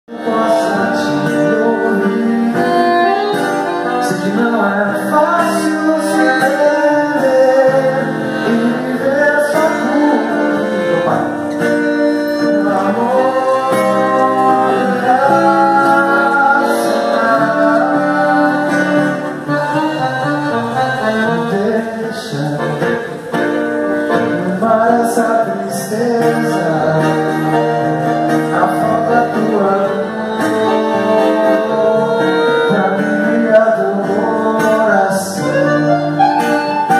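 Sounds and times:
acoustic guitar: 0:00.0 - 0:36.9
piano accordion: 0:00.1 - 0:36.9.

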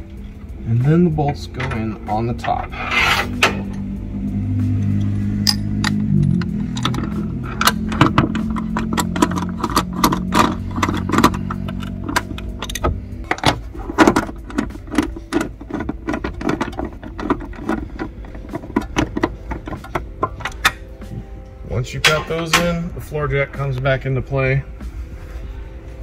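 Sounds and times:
low steady hum: 0:00.0 - 0:26.0
ratchet wrench clicking: 0:04.8 - 0:13.4.

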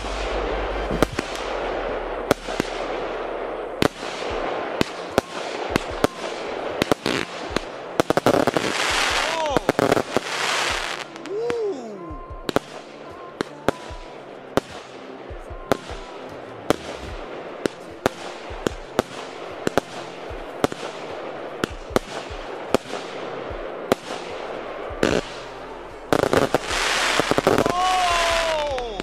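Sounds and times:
fireworks crackling: 0:00.0 - 0:29.0
firework whistle: 0:26.2 - 0:29.0.

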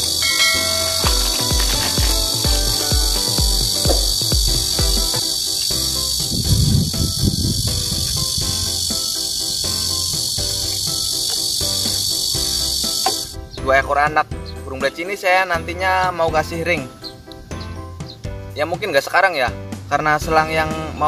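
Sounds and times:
shrill insect chorus: 0:00.0 - 0:13.7
background music with beat: 0:00.0 - 0:21.0.

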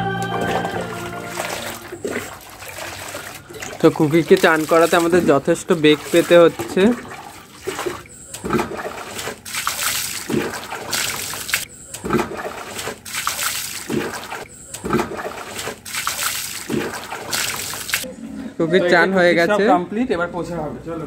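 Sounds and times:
water pouring and splashing: 0:00.4 - 0:18.1
water running onto concrete: 0:01.2 - 0:18.0.

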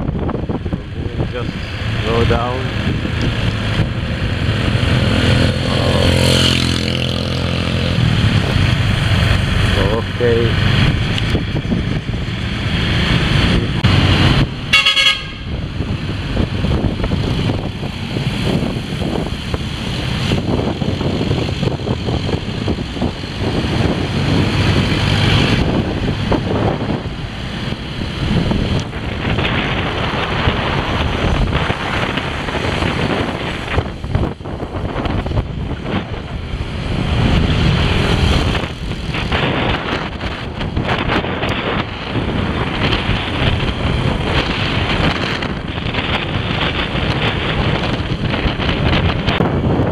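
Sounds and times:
engines rumbling: 0:00.0 - 0:49.9
wind on microphone: 0:00.0 - 0:49.9
vehicle horn honking: 0:14.7 - 0:15.6.

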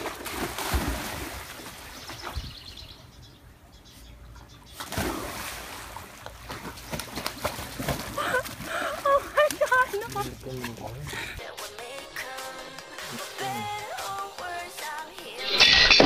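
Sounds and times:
dog swimming splashing water: 0:00.0 - 0:02.4, 0:04.8 - 0:11.1.

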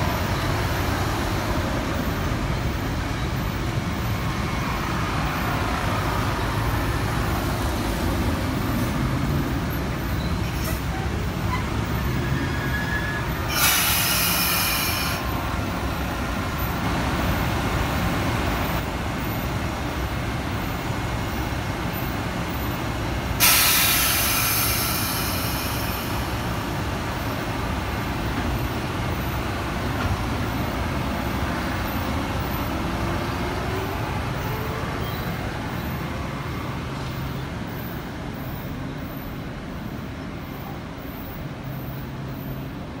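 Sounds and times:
loud hiss: 0:13.4 - 0:15.3, 0:23.4 - 0:26.6.

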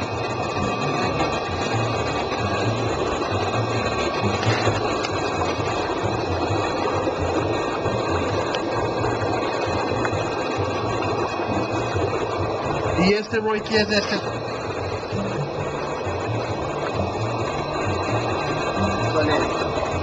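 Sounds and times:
dense rushing noise: 0:00.0 - 0:20.0
low throb: 0:00.0 - 0:20.0
mechanical hum: 0:00.0 - 0:20.0.

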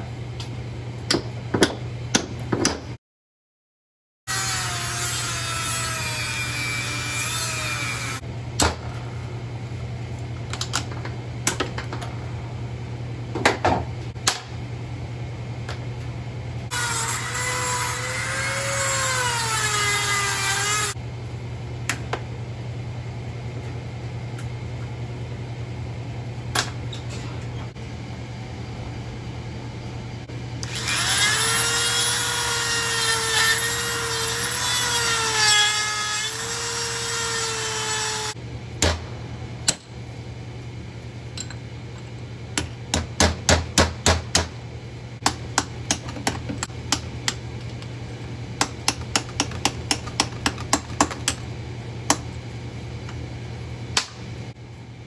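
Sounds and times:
low steady hum: 0:04.3 - 0:55.0
small power tool whining: 0:30.6 - 0:38.4.

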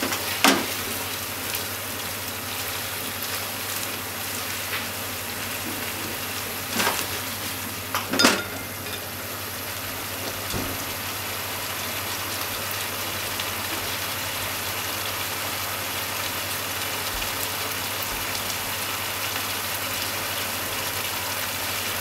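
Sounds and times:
stir-fry sizzling in pan: 0:00.0 - 0:22.0
low steady hum: 0:07.4 - 0:09.8.

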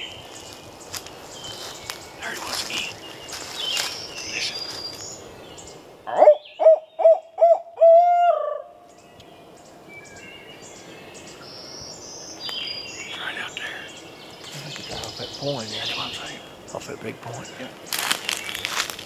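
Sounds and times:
person imitating owl hoots: 0:06.1 - 0:08.7.

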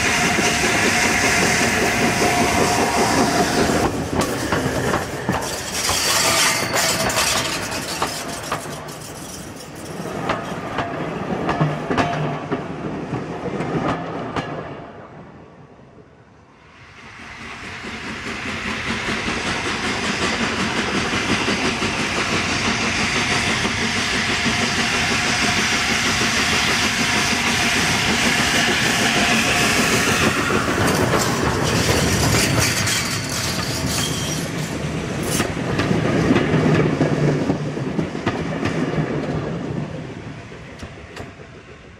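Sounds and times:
steam locomotive running past: 0:00.0 - 0:15.3, 0:16.5 - 0:41.9
wheels clicking over rail joints: 0:03.6 - 0:12.7, 0:26.1 - 0:39.4.

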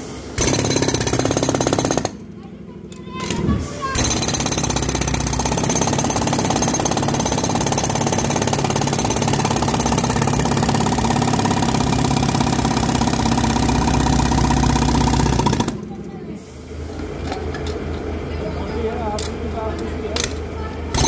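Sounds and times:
jackhammer hammering concrete: 0:00.4 - 0:02.3, 0:03.2 - 0:16.0.

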